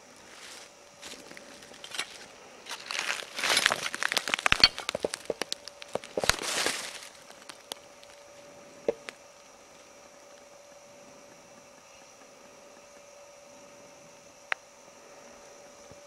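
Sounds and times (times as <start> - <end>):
footsteps crunching dry leaves: 0.2 - 8.2
twigs snapping: 1.0 - 8.3.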